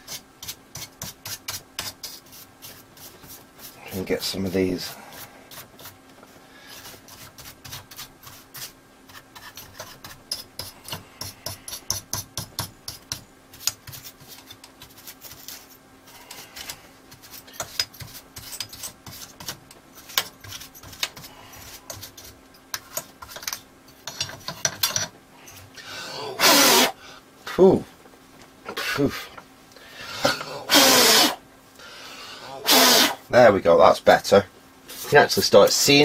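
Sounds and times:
brush scrubbing dust off metal: 0:00.0 - 0:06.0, 0:06.6 - 0:24.6.

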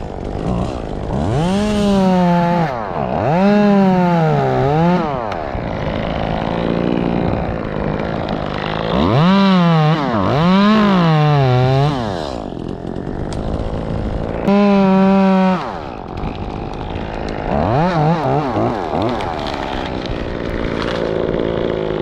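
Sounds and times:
chainsaw idling and revving: 0:00.0 - 0:22.0.

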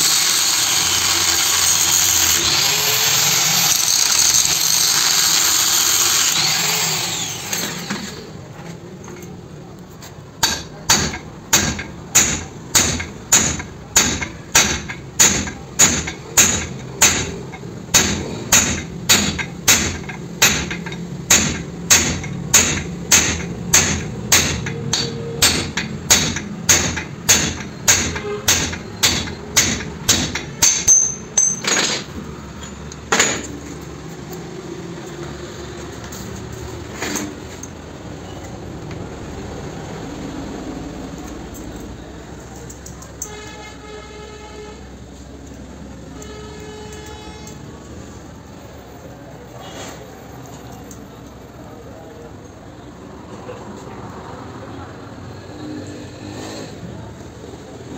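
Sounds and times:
hammer blows on metal: 0:10.4 - 0:31.7.

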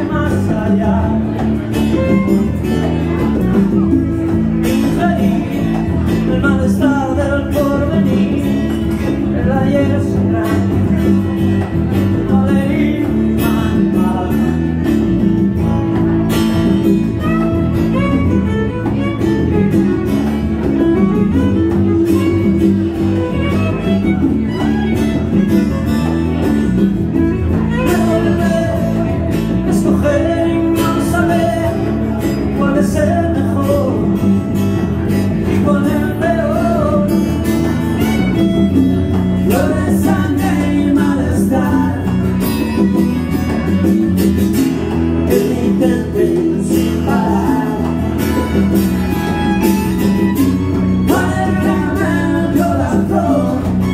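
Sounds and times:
acoustic guitar strumming: 0:00.0 - 0:53.9
congas: 0:00.0 - 0:53.9
electric bass: 0:00.0 - 0:53.9
violin melody: 0:16.2 - 0:29.3, 0:37.6 - 0:39.4, 0:42.4 - 0:45.1, 0:48.0 - 0:52.5.

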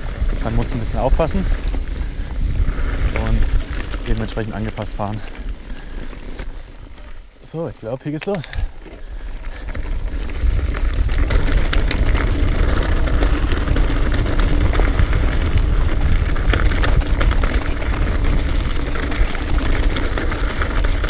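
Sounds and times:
bike rattling and clattering: 0:00.0 - 0:21.0
constant low rumble: 0:00.0 - 0:21.0
tyres crunching over stones: 0:00.0 - 0:21.0.

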